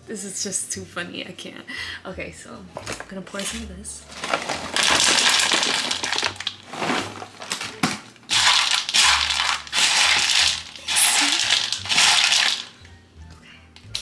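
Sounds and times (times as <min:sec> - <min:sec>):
cereal pieces clicking: 0:04.2 - 0:06.7, 0:07.4 - 0:12.8
cereal pouring into a bowl: 0:04.2 - 0:07.5, 0:08.3 - 0:12.8.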